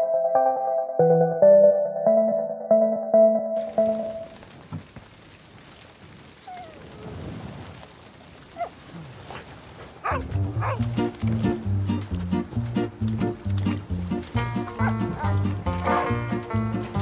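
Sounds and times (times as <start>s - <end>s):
rain pattering: 3.6s - 17.0s
dog whining: 6.4s - 6.8s, 10.0s - 10.8s
music with low repeated notes: 10.3s - 17.0s.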